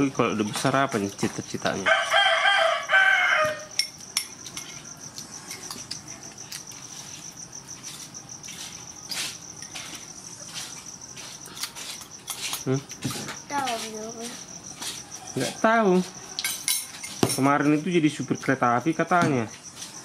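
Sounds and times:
high insect trill: 0.0s - 20.0s
rooster crowing: 1.8s - 4.0s.

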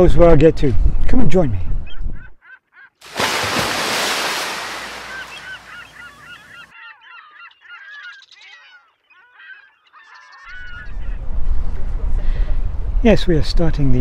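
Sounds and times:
birds honking: 3.7s - 10.9s.

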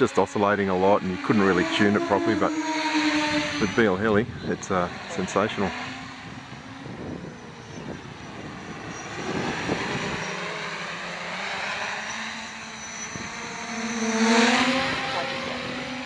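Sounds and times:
quadcopter motors buzzing: 0.0s - 16.0s.

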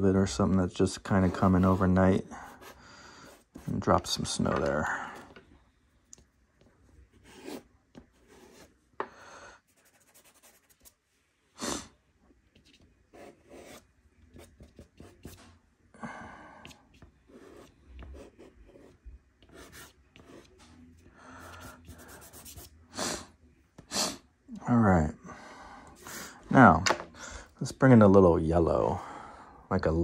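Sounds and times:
pastel scratching on paper: 9.7s - 11.0s, 16.9s - 20.7s, 21.4s - 22.7s.

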